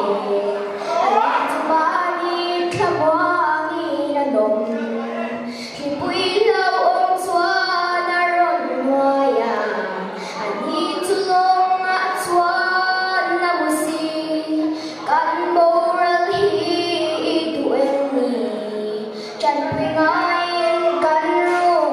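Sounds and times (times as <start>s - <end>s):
girl singing into microphone: 0.0s - 21.9s.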